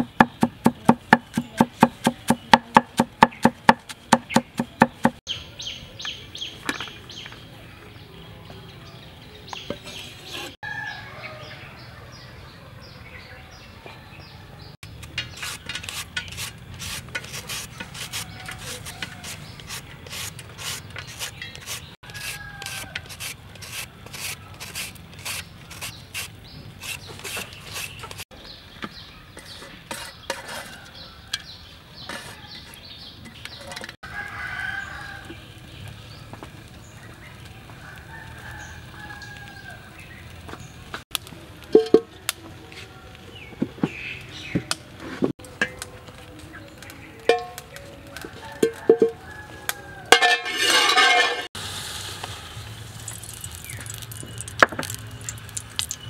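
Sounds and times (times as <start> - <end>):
rooster crowing: 10.6 - 12.2, 22.0 - 23.0, 34.0 - 35.4, 37.7 - 40.0, 48.2 - 51.5.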